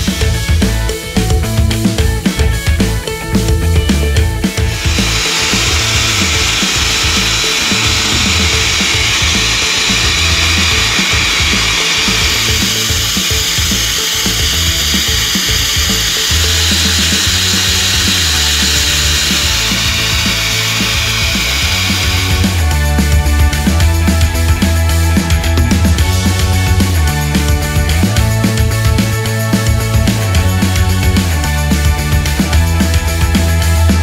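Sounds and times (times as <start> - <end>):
background music with low beat: 0.0 - 34.0
pet dryer blowing: 4.6 - 24.7.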